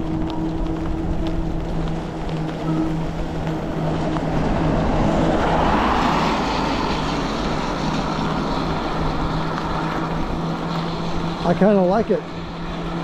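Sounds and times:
car passing on wet road: 0.0 - 13.0
electric bike humming: 0.0 - 13.0
tyres hissing on wet road: 3.4 - 13.0.

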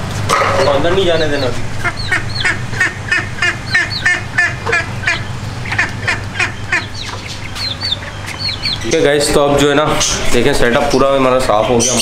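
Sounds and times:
ducklings and chicks peeping: 0.0 - 12.0
low hum: 1.1 - 10.4.

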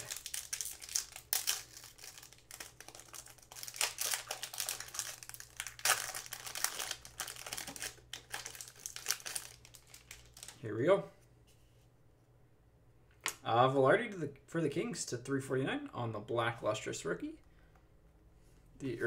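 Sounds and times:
foil wrapper crinkling: 0.0 - 10.6.

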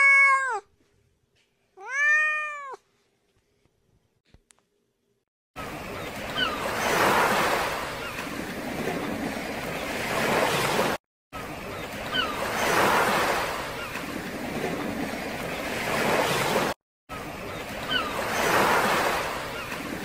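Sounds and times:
sea waves washing on shore: 5.6 - 20.0.

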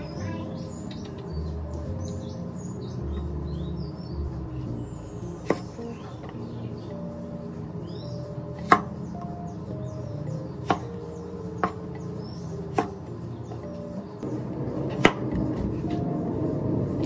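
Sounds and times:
soft background music: 0.0 - 17.0
knife chopping on wooden board: 5.4 - 6.4, 8.6 - 9.0, 10.6 - 11.0, 11.6 - 11.8, 12.7 - 13.0, 14.9 - 15.7.

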